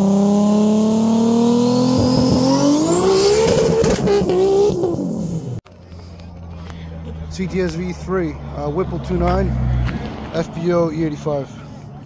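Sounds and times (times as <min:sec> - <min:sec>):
car engine accelerating hard: 0:00.0 - 0:05.6.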